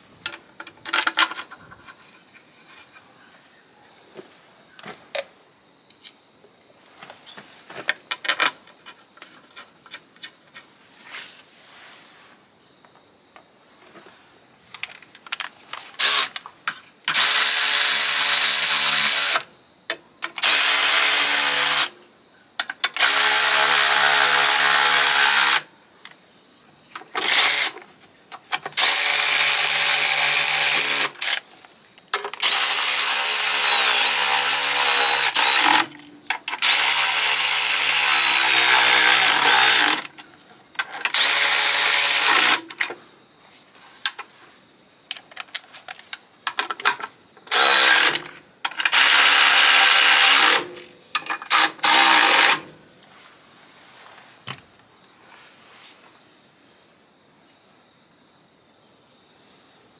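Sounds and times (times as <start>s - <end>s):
electric ratchet whining: 16.0s - 16.4s, 17.1s - 19.4s, 20.4s - 22.0s, 22.9s - 25.7s, 27.2s - 27.8s, 28.8s - 31.4s, 32.3s - 36.0s, 36.6s - 40.1s, 41.0s - 42.8s, 47.5s - 50.7s, 51.5s - 52.6s.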